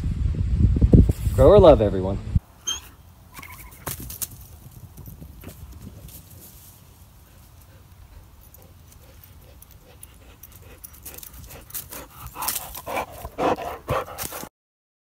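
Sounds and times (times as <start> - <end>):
dog footfalls on dry leaves: 3.5 - 12.9
dog panting: 7.2 - 14.5.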